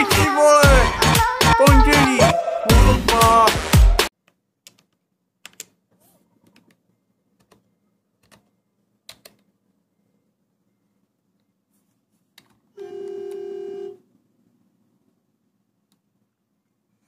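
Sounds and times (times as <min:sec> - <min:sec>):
loud voice over music: 0:00.0 - 0:03.8.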